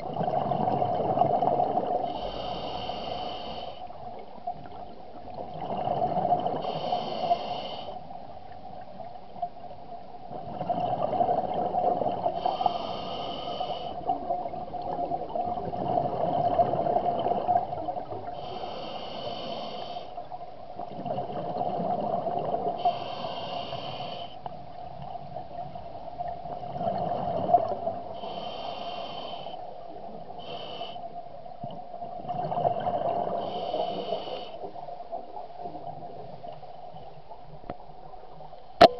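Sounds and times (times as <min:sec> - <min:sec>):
gurgling exhaled bubbles: 0:00.0 - 0:02.2, 0:05.3 - 0:06.8, 0:10.3 - 0:12.5, 0:14.0 - 0:18.3, 0:20.9 - 0:22.8, 0:26.4 - 0:28.1, 0:32.1 - 0:33.5
diver breathing through regulator: 0:02.0 - 0:03.9, 0:05.8 - 0:08.1, 0:12.3 - 0:14.1, 0:18.2 - 0:20.2, 0:22.8 - 0:24.4, 0:27.2 - 0:29.6, 0:30.4 - 0:31.1, 0:33.2 - 0:34.7.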